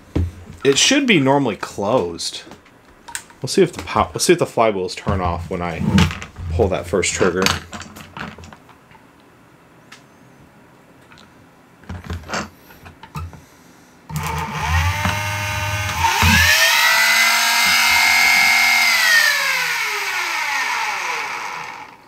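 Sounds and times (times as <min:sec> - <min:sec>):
flywheel motors whining: 0:14.1 - 0:22.0.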